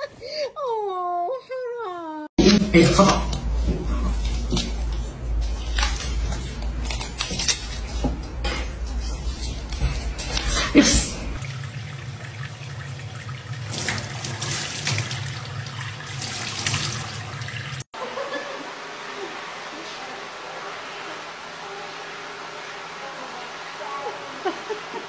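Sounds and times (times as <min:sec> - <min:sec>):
tap water splashing into a sink: 0:11.4 - 0:17.8.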